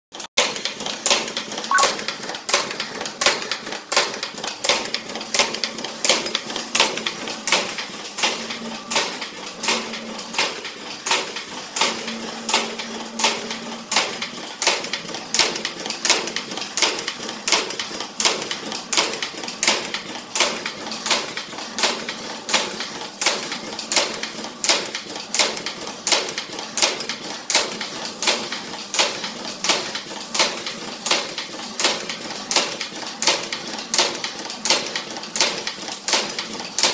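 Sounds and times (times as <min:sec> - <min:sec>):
punch machine striking: 0:01.7 - 0:02.0.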